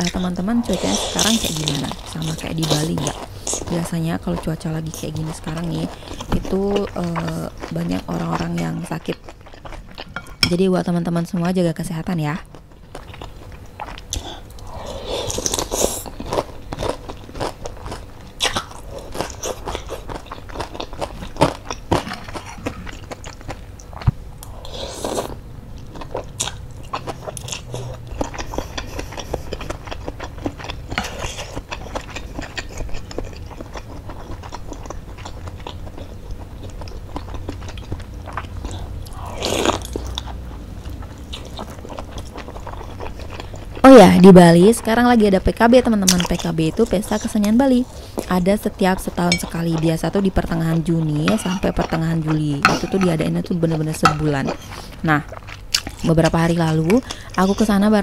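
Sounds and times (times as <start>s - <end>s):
person chewing and biting: 12.5s - 44.2s, 53.7s - 56.4s.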